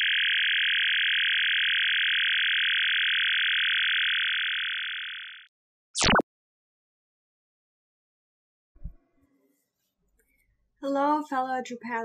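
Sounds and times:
electronic buzzing tone: 0:00.0 - 0:06.2.

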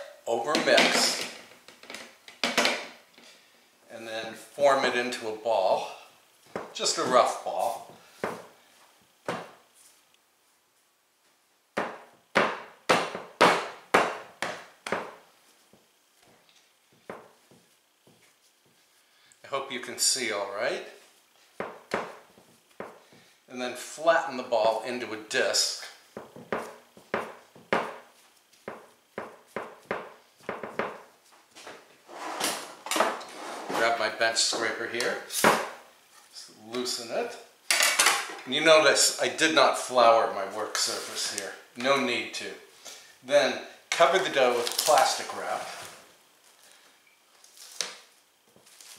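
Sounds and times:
hands patting dough on marble: 0:11.8 - 0:18.9, 0:21.5 - 0:23.3, 0:26.1 - 0:31.3
hands patting dough: 0:25.8 - 0:31.4.

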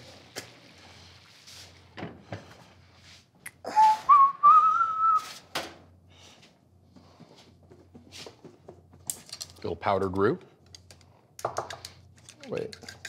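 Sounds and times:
person whistling: 0:03.7 - 0:05.4.

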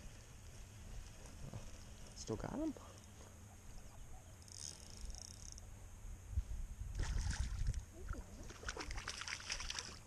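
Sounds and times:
high fishing reel whir: 0:04.4 - 0:05.7
water splashing: 0:06.9 - 0:10.0.

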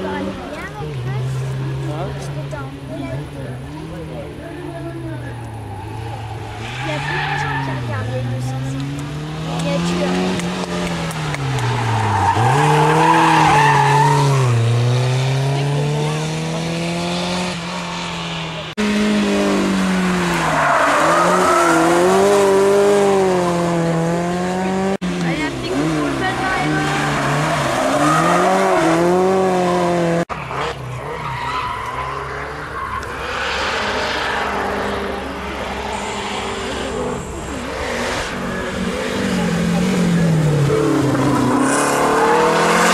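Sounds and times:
car engine at hard throttle: 0:00.0 - 0:42.9
tyres squealing: 0:11.4 - 0:14.7.

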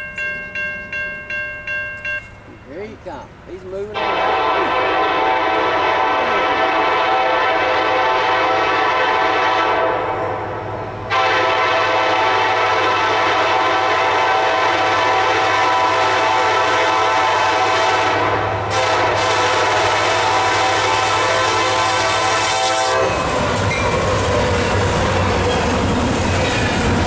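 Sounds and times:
locomotive air horn blowing: 0:04.0 - 0:25.4.

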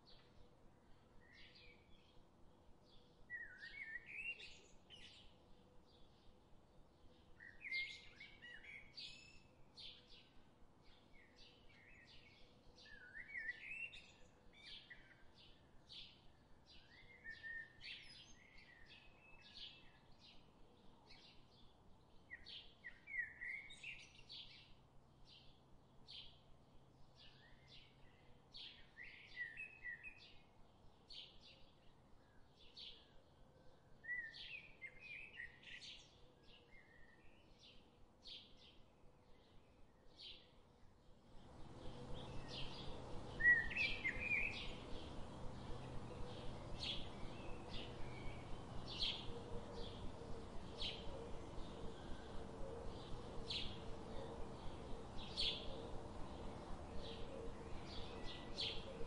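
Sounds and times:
small birds chirping and twittering: 0:00.0 - 0:59.0.

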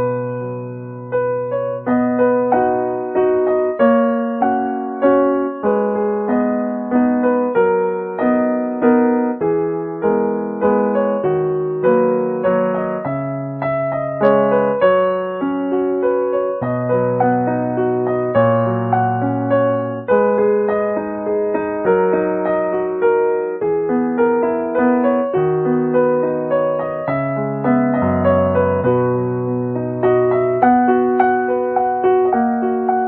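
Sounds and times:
piano melody: 0:00.0 - 0:33.0.

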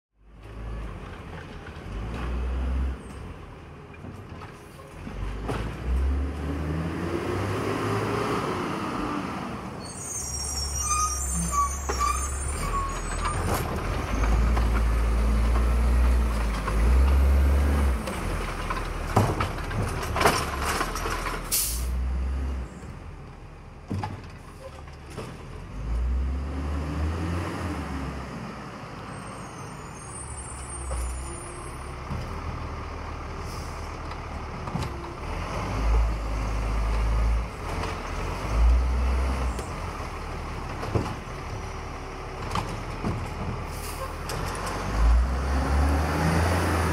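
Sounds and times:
diesel engine revving: 0:05.1 - 0:10.4, 0:11.2 - 0:19.1, 0:25.6 - 0:30.1, 0:31.0 - 0:46.9
air brake hiss: 0:21.5 - 0:22.0.

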